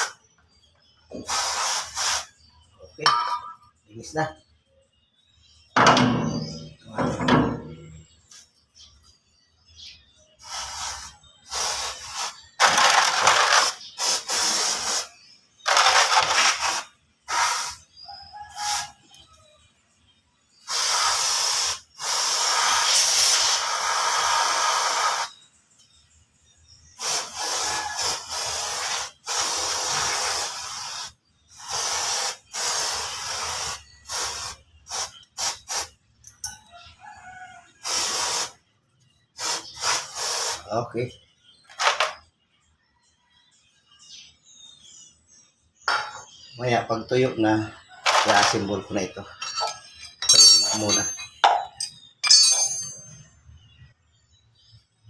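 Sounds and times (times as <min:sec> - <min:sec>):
aerosol spray hissing: 0:01.1 - 0:02.5, 0:10.4 - 0:15.1, 0:16.6 - 0:18.9, 0:20.7 - 0:25.3, 0:27.0 - 0:36.0, 0:37.8 - 0:38.6, 0:39.4 - 0:40.7.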